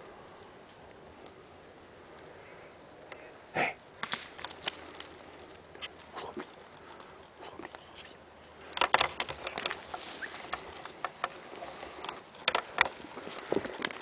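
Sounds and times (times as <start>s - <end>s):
sharp clicks and crunches: 4.0s - 14.0s.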